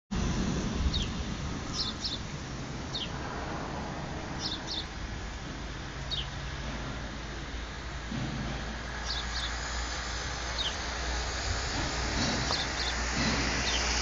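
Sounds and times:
low background rumble: 0:00.1 - 0:14.0
bird chirping: 0:00.9 - 0:02.3, 0:02.9 - 0:03.2, 0:04.4 - 0:05.0, 0:06.0 - 0:06.5, 0:09.0 - 0:09.6, 0:12.4 - 0:13.0.

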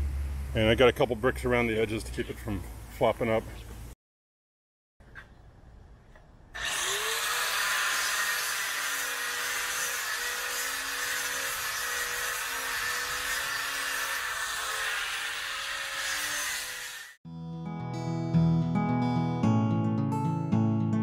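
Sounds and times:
router motor whine cutting wood: 0:06.6 - 0:17.2.

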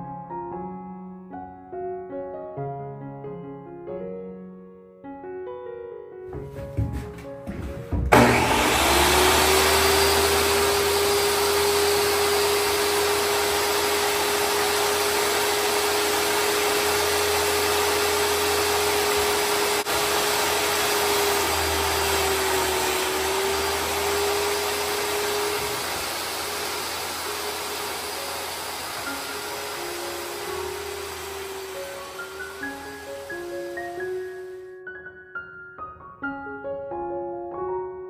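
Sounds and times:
electric motor humming: 0:08.1 - 0:34.5
rushing noise: 0:22.1 - 0:34.2.

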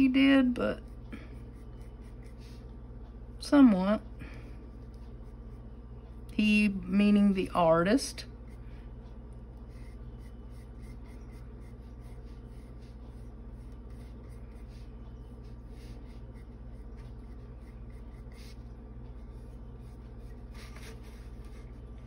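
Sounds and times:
steady low hum: 0:00.0 - 0:22.0
paintbrush strokes on wood: 0:00.8 - 0:02.8, 0:09.6 - 0:22.0.

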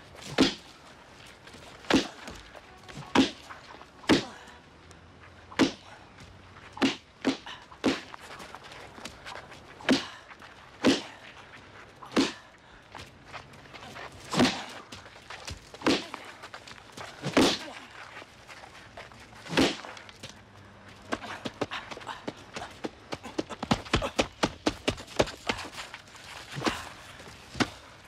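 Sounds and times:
heavy punches landing: 0:00.2 - 0:00.7, 0:01.8 - 0:02.5, 0:04.1 - 0:04.4, 0:05.6 - 0:05.9, 0:10.8 - 0:11.2, 0:12.1 - 0:12.5, 0:19.5 - 0:19.9.

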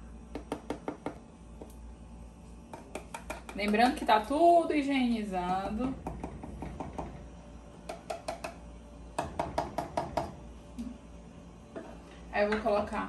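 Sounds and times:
carton tapping on a pan: 0:02.7 - 0:03.9, 0:07.8 - 0:08.6.

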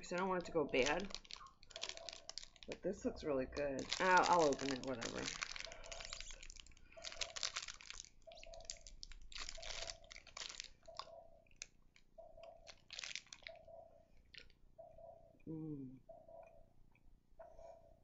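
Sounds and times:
wrapper crinkling: 0:00.0 - 0:13.6
biting and chewing: 0:00.4 - 0:02.8, 0:03.7 - 0:14.6.

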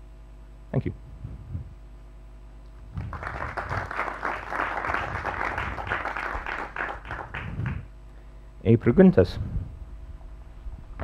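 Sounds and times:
audience applauding: 0:03.0 - 0:07.9.

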